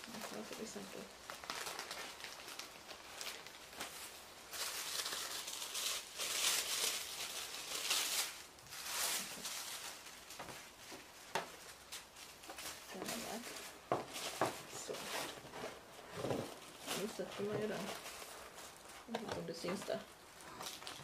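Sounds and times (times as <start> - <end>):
tissue paper rustling and crinkling: 0.0 - 21.0.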